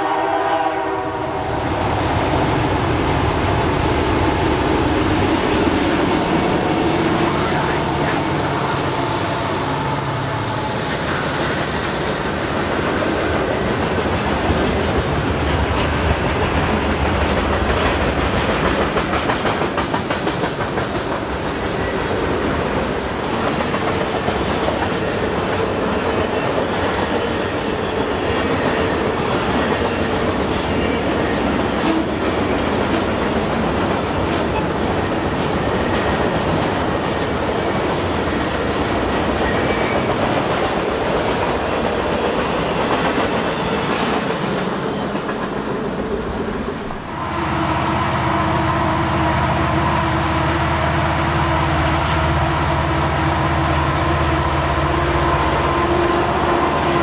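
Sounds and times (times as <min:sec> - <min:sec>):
train wheels rumbling on rails: 0:00.0 - 0:57.0
clickety-clack over rail joints: 0:10.7 - 0:47.0.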